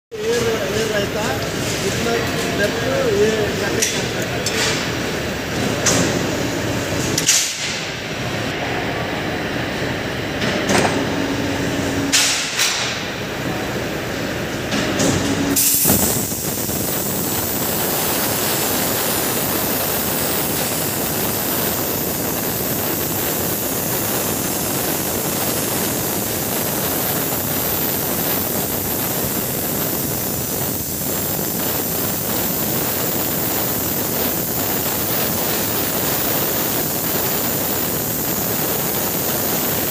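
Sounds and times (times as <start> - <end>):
plasma torch hissing: 14.9 - 39.9.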